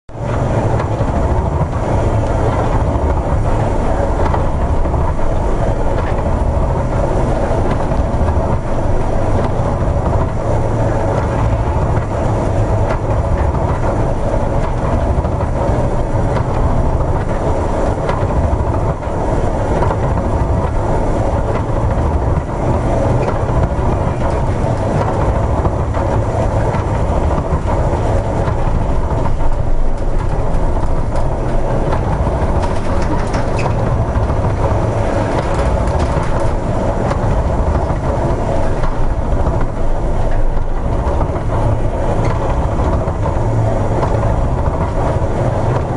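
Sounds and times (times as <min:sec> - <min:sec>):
ship running rumble: 0:00.0 - 0:45.9
wind: 0:00.1 - 0:45.9
waves breaking: 0:00.2 - 0:45.9.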